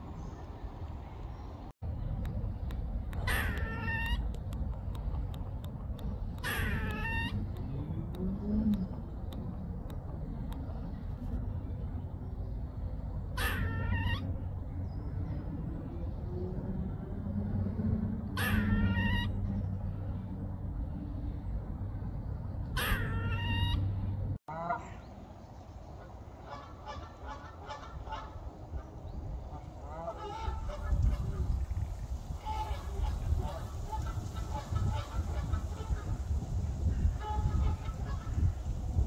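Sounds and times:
steady low rumble: 0.0s - 39.0s
geese honking: 26.4s - 28.9s, 29.5s - 31.5s.

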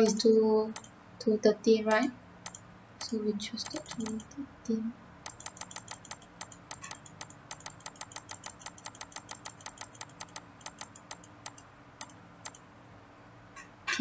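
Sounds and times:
mouse button clicking: 2.5s - 4.4s, 5.3s - 12.6s.

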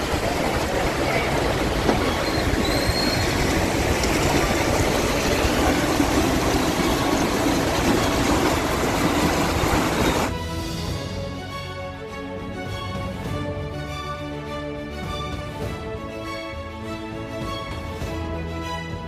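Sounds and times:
floodwater rushing: 0.0s - 10.3s.

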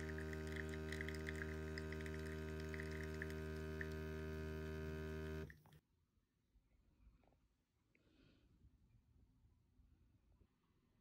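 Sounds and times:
coffee machine pump humming: 0.0s - 5.8s
crackling coffee stream: 0.0s - 5.8s.

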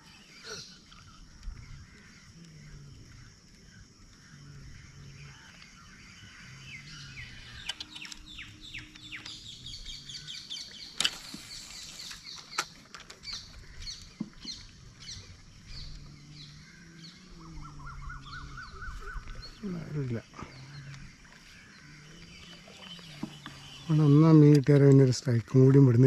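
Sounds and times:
small birds chirping: 0.0s - 26.0s
sharp clicks: 7.5s - 9.5s
rising bird notes: 14.5s - 24.4s.

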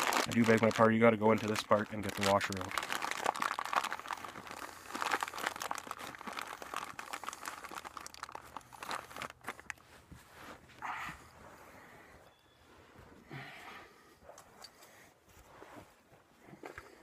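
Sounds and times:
plastic bag crinkling: 0.0s - 9.8s.

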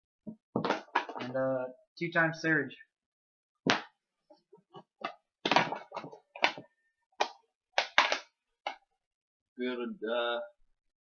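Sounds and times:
plastic discs knocking together: 4.8s - 8.8s.

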